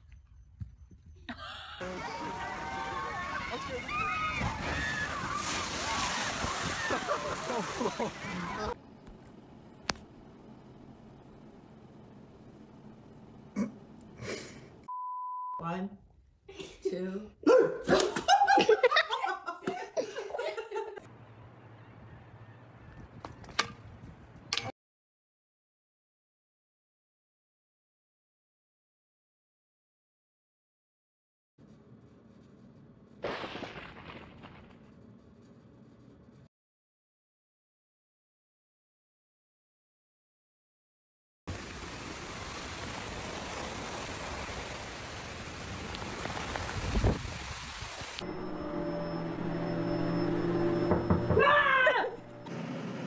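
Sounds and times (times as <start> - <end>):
person laughing: 1.2 - 2.1, 6.8 - 8.7, 17.5 - 21.0
heavy rain falling: 41.5 - 48.2.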